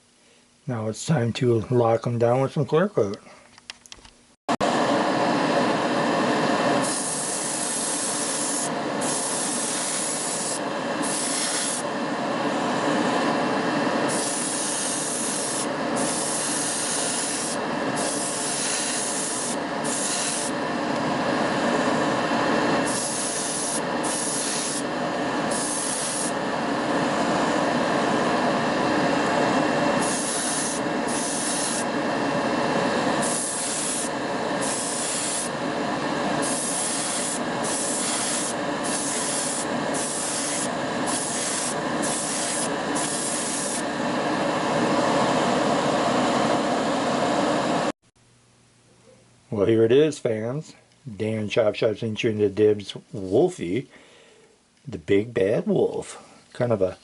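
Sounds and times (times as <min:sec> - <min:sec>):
spray hissing bursts: 0:05.0 - 0:47.8.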